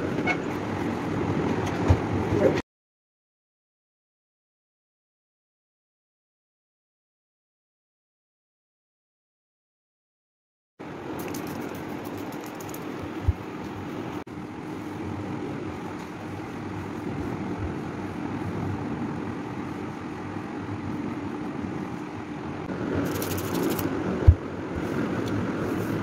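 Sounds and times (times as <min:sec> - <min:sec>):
mechanical hum and rumble: 0:00.0 - 0:02.6, 0:10.8 - 0:26.0.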